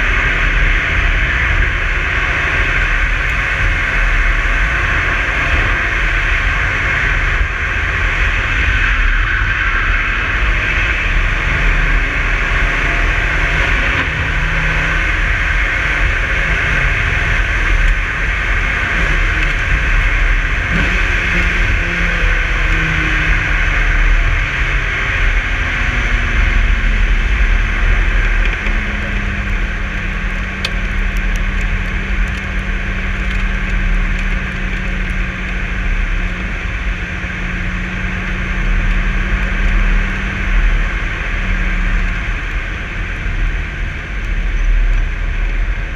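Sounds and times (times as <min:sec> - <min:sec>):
car engine droning: 0:00.0 - 0:45.9
wind and road noise rushing: 0:00.0 - 0:45.9.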